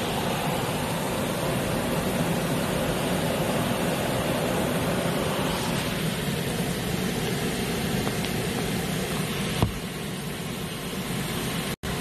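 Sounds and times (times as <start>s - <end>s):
gusting wind: 0.0s - 11.6s
heavy rain pouring: 0.0s - 12.0s.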